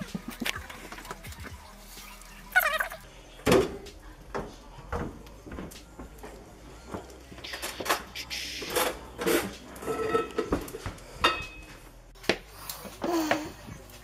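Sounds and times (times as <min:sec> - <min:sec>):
crockery and cutlery clinking: 0:08.7 - 0:11.8.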